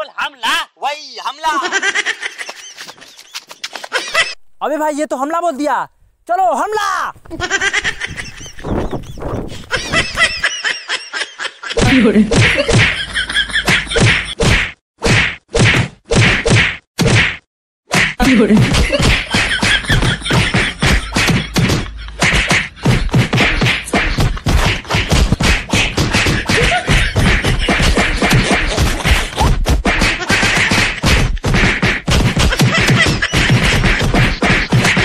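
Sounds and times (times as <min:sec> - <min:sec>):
punch and kick sound effects: 0:14.0 - 0:35.0.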